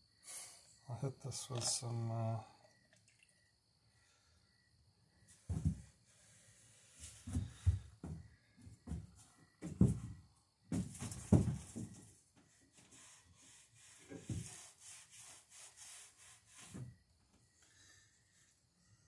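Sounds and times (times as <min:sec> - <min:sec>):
wood rubbing strokes: 0:12.7 - 0:16.9.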